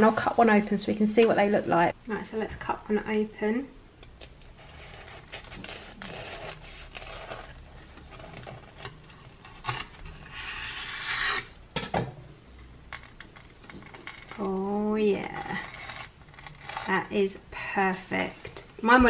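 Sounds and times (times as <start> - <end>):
knife sawing through crunchy crust: 4.6 - 8.3, 15.2 - 17.1.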